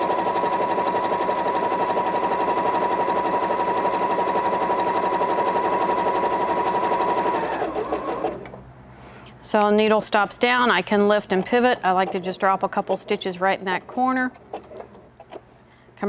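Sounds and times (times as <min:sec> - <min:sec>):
sewing machine stitching: 0:00.0 - 0:08.6.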